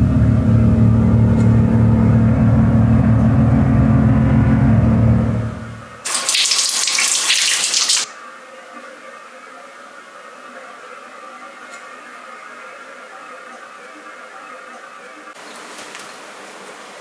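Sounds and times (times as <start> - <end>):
low steady drone: 0.0 - 6.1
tap water running over hands: 6.1 - 8.1.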